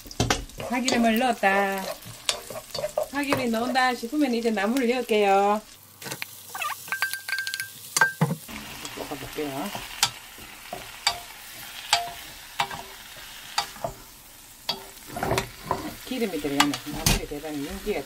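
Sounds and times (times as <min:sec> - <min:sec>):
greens sizzling in a pan: 0:00.0 - 0:18.0
wooden spatula scraping a pan: 0:00.2 - 0:04.2, 0:08.5 - 0:18.0.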